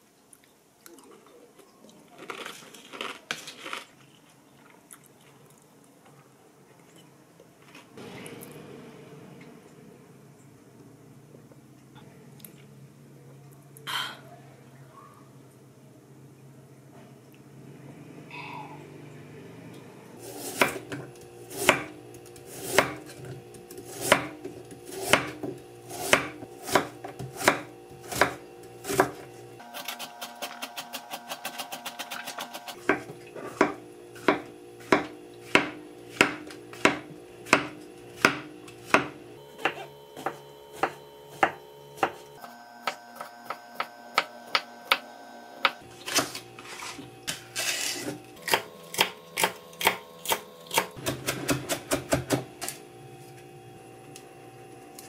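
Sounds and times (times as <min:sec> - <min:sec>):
knife chopping on wooden board: 0:20.4 - 0:30.0, 0:30.6 - 0:42.2, 0:48.0 - 0:52.8.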